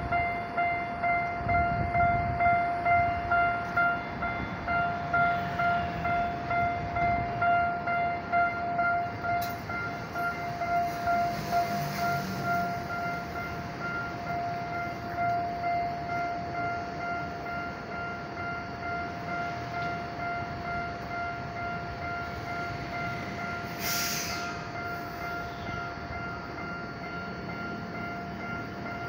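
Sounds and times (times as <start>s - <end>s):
level-crossing alarm ringing: 0.0s - 29.0s
subway car rumbling: 0.0s - 29.0s
air hiss: 23.7s - 24.6s.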